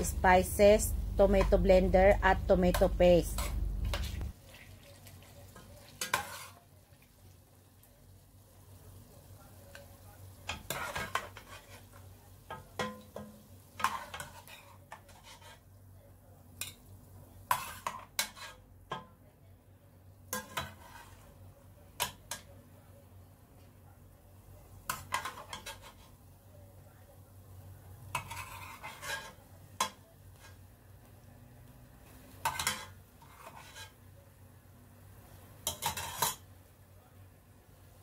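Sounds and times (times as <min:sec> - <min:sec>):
low steady hum: 0:00.0 - 0:04.5
faint sizzling: 0:00.0 - 0:38.0
metal ladle scraping a pot: 0:06.0 - 0:06.6, 0:13.8 - 0:15.6, 0:17.5 - 0:18.6, 0:28.1 - 0:29.4, 0:32.4 - 0:34.0, 0:35.6 - 0:36.4.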